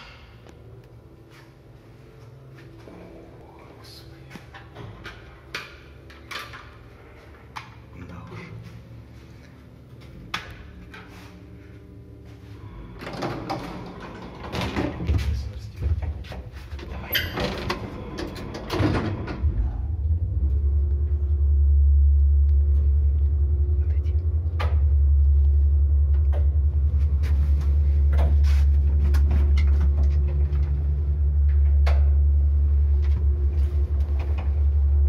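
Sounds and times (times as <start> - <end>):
elevator rumble: 0.6 - 35.0
elevator doors sliding closed: 12.7 - 20.8.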